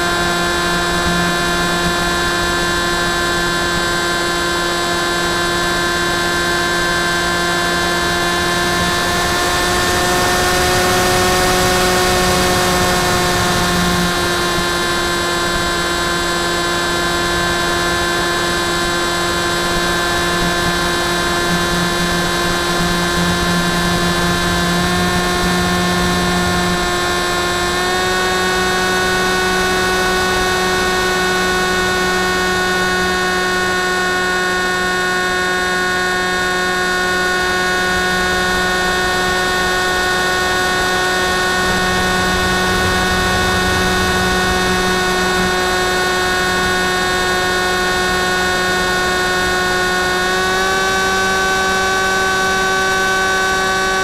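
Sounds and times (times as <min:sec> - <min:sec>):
electric motor propeller whine: 0:00.0 - 0:54.0
wind rush: 0:39.8 - 0:47.8.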